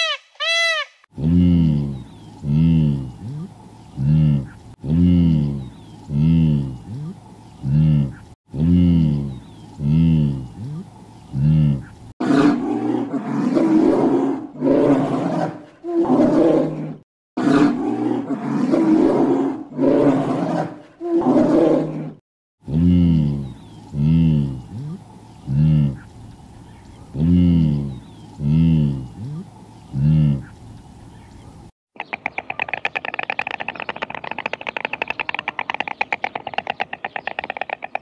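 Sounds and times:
wildebeest grunting calls: 1.2s - 13.2s, 22.7s - 26.1s, 27.1s - 30.6s
bear growling: 1.2s - 26.1s, 27.2s - 30.5s.

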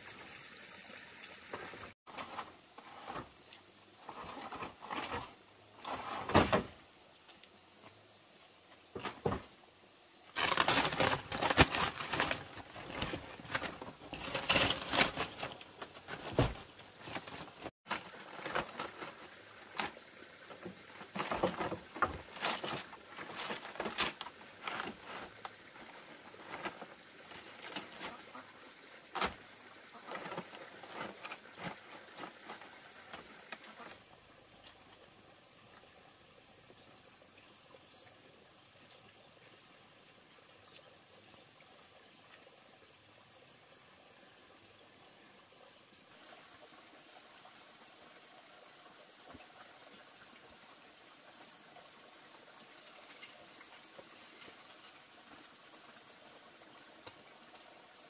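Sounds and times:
high insect trill: 2.1s - 58.0s
rustling: 10.3s - 20.0s, 21.0s - 28.4s, 29.1s - 34.0s
bamboo knocking and clattering: 10.4s - 19.1s, 20.6s - 25.5s.

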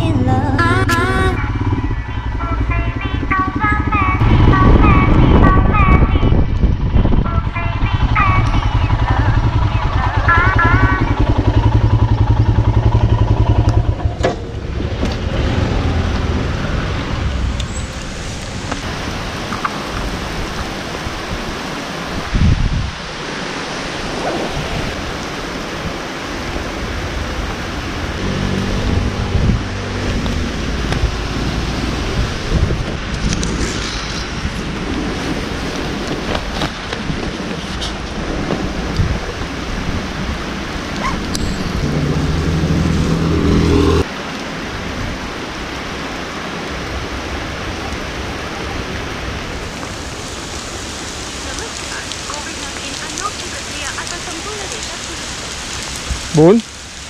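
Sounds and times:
low steady drone: 0.0s - 15.2s, 40.4s - 44.1s
steady rain hiss: 14.7s - 43.3s, 44.0s - 57.0s.

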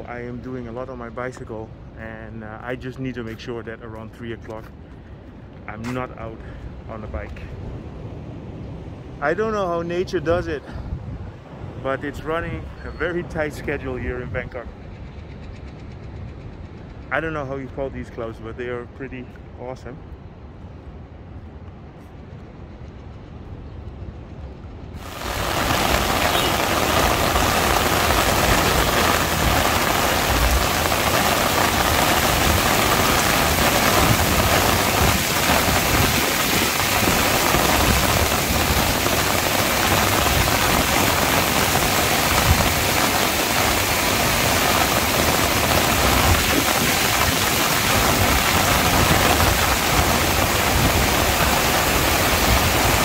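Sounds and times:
heavy rain pouring: 0.0s - 0.3s, 25.0s - 53.0s.

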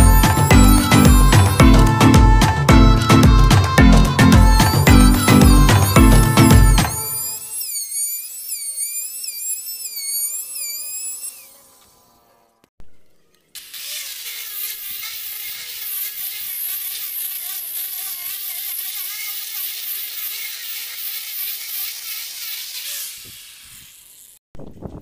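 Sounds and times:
sanding disc hiss on wood: 0.0s - 12.1s, 13.6s - 24.4s
angle grinder motor whine: 0.0s - 12.7s, 13.6s - 24.4s.

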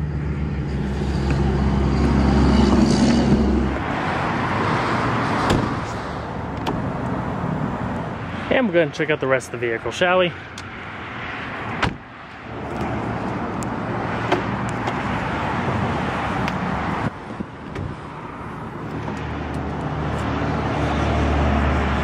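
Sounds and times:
road traffic noise: 0.0s - 22.0s
vehicle low rumble: 0.0s - 22.0s.

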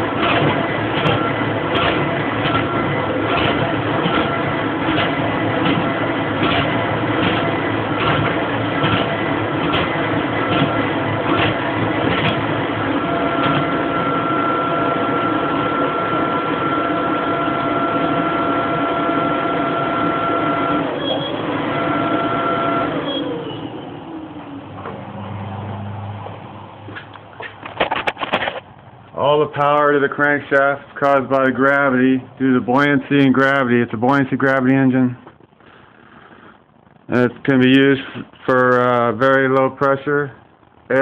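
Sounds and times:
engine hum and whine: 0.0s - 30.5s.

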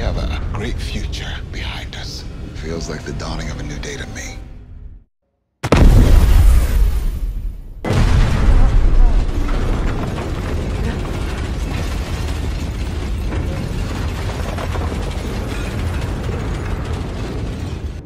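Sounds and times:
explosion rumble: 5.6s - 18.0s
constant rattling: 9.1s - 18.0s.

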